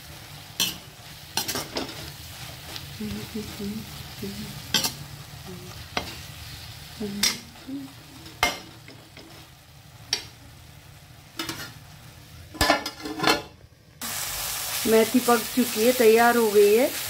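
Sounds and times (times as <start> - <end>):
leaves sizzling in a pan: 0.0 - 13.1, 14.0 - 17.0
metal lid clattering: 12.6 - 13.5.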